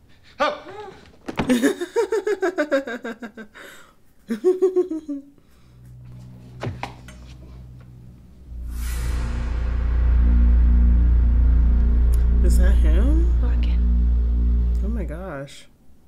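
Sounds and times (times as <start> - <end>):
woman laughing: 0.4 - 3.6, 4.3 - 5.3
faint low hum: 4.3 - 16.0.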